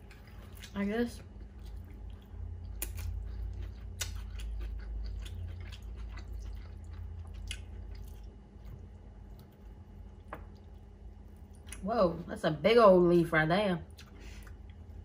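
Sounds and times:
chewing noodles: 0:00.0 - 0:11.8.

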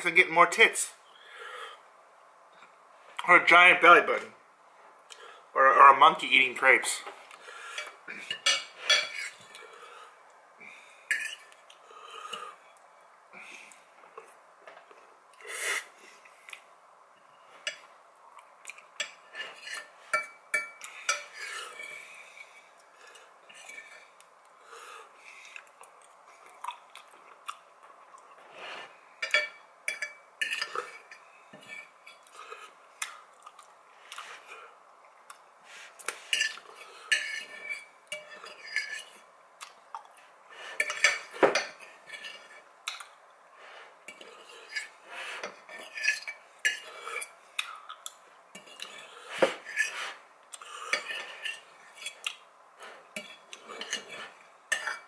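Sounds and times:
fork scraping ceramic bowl: 0:42.0 - 0:42.6, 0:44.1 - 0:47.3, 0:48.6 - 0:50.2, 0:50.9 - 0:52.2, 0:53.2 - 0:55.0.

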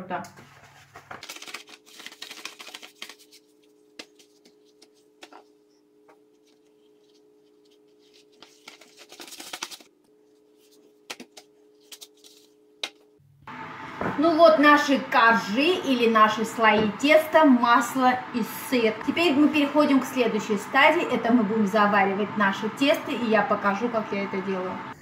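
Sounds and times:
dough sheets rustling and flapping: 0:00.3 - 0:13.1.

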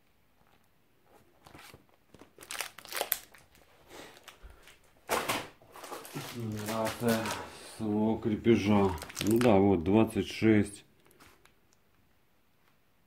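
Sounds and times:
paper crinkling and rustling: 0:00.4 - 0:09.7.

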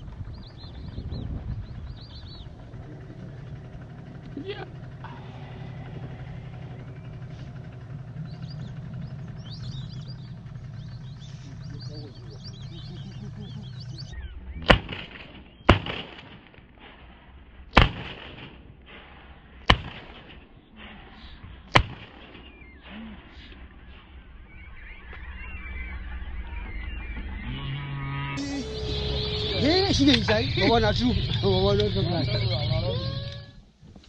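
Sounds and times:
ducks whistling: 0:00.0 - 0:16.4, 0:19.7 - 0:33.6
low hum: 0:00.0 - 0:34.0
shotgun shots: 0:14.6 - 0:20.7, 0:21.7 - 0:23.0.

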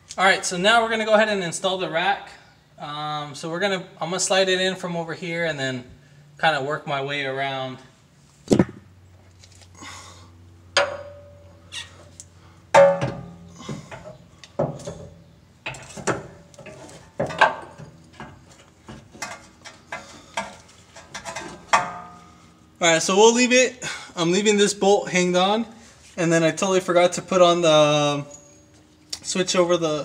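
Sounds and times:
metal clanks and knocks: 0:10.8 - 0:11.5, 0:12.7 - 0:22.4.

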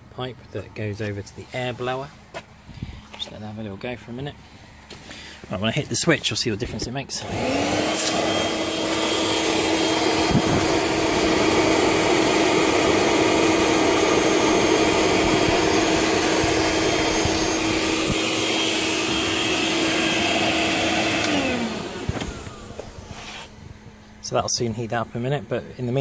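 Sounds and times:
air blower humming: 0:04.3 - 0:26.0
rush of forced air: 0:07.8 - 0:24.2.

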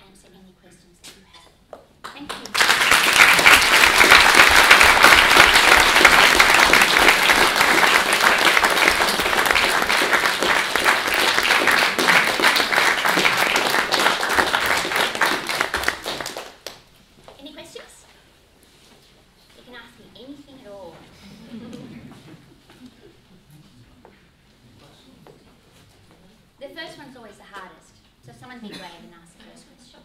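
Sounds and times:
audience applauding: 0:02.3 - 0:16.8.

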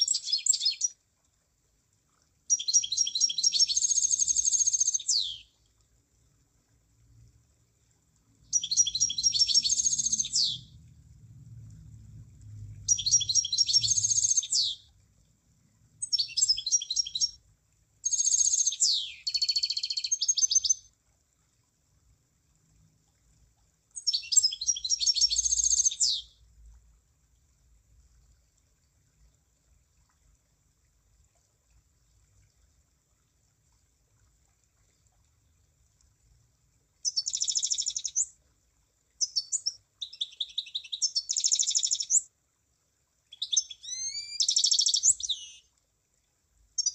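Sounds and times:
bird chirping song: 0:00.0 - 0:01.0, 0:02.5 - 0:05.5, 0:08.5 - 0:10.8, 0:12.8 - 0:14.9, 0:16.0 - 0:17.4, 0:18.0 - 0:20.9, 0:24.0 - 0:26.4, 0:37.0 - 0:38.3, 0:39.2 - 0:42.3, 0:43.3 - 0:45.7.

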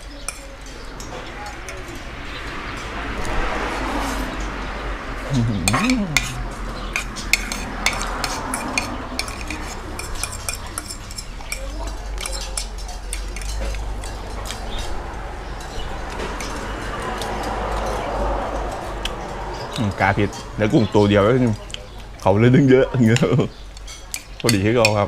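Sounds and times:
cutlery clinking on ceramic plate: 0:00.0 - 0:02.1, 0:05.7 - 0:14.9, 0:23.0 - 0:25.0.

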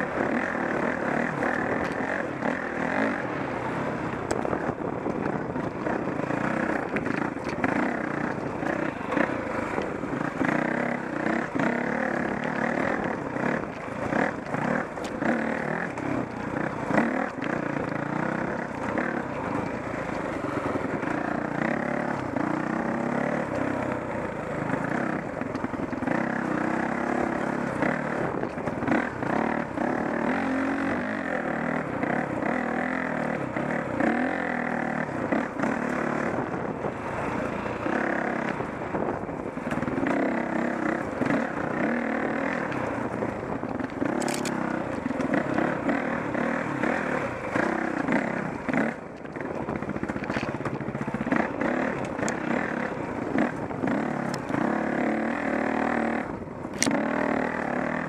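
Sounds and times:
dirt bike engine revving: 0:00.0 - 0:58.0
bike knocking and rattling: 0:04.2 - 0:58.0.

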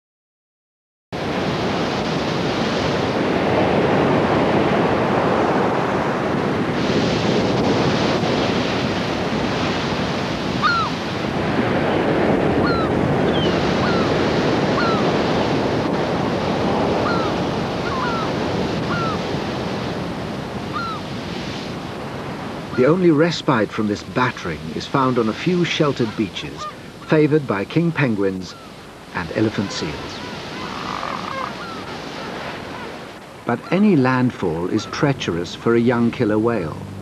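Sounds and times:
ocean waves breaking: 0:01.2 - 0:37.0
wind: 0:01.2 - 0:37.0
bird calls sliding down in pitch: 0:29.6 - 0:33.0.

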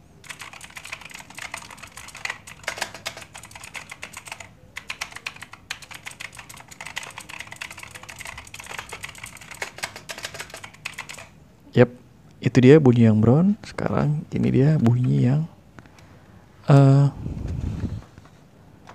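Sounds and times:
mechanical keyboard typing: 0:00.2 - 0:11.3.

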